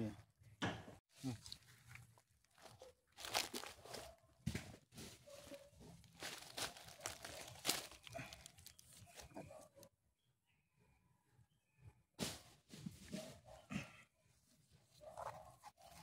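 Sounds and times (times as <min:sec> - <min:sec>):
dry palm leaves crackling: 0:01.4 - 0:04.1, 0:06.0 - 0:09.4.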